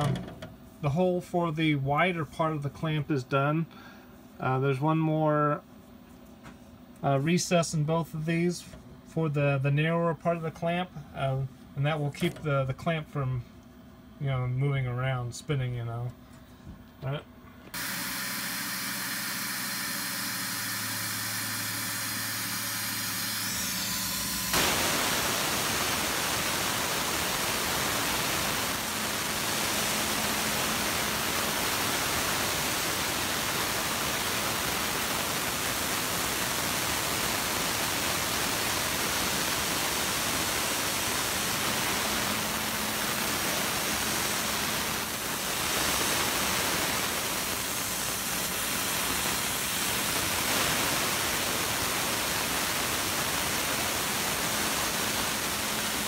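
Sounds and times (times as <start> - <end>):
mill spindle tones: 17.7 - 56.0
coolant spray hissing: 17.8 - 56.0.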